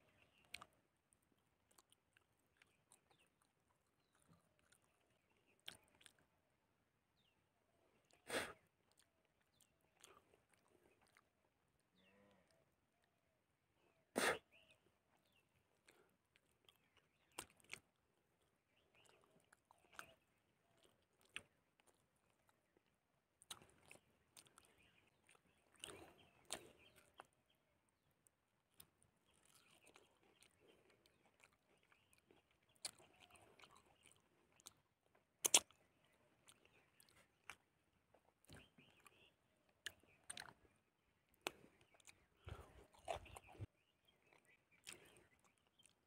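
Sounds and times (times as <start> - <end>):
soft chewing: 0.0 - 46.0
lip smacking: 23.4 - 27.4, 35.4 - 40.7, 44.7 - 46.0
wet mouth clicks and smacks: 35.4 - 35.8.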